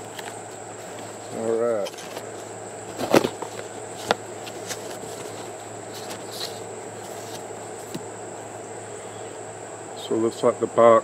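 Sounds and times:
cardboard rustling: 0:00.0 - 0:08.6
high insect buzz: 0:00.0 - 0:10.4.

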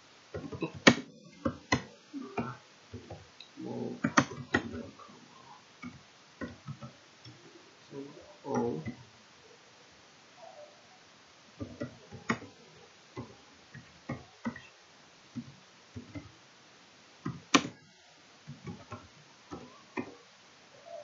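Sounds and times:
keyboard typing: 0:04.0 - 0:04.9, 0:18.5 - 0:20.1.

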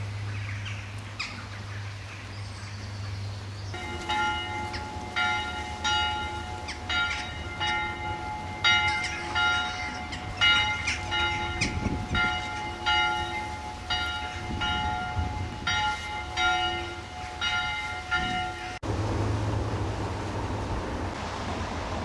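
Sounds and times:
church bells ringing: 0:03.7 - 0:18.9.

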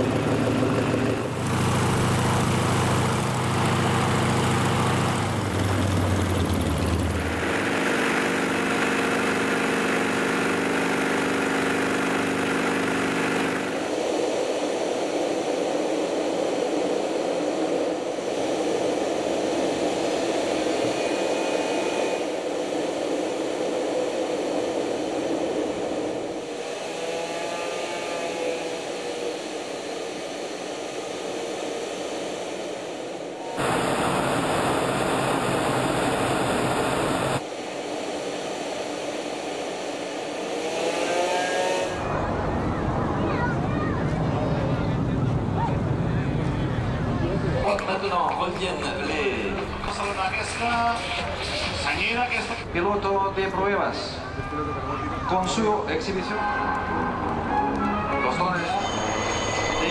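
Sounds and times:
propeller plane engine humming: 0:00.0 - 0:43.5
jet engines rushing: 0:00.0 - 0:54.2.

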